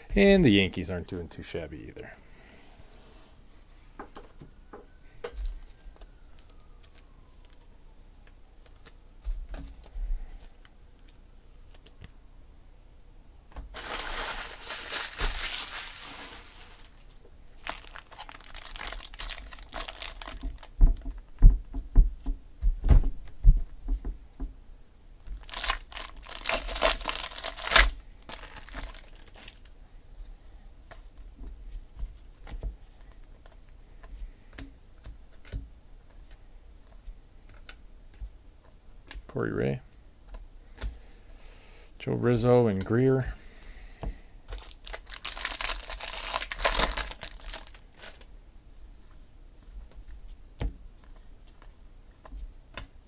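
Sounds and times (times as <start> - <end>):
foil wrappers tearing and crinkling: 13.7 - 20.7, 25.4 - 29.6, 44.5 - 48.3.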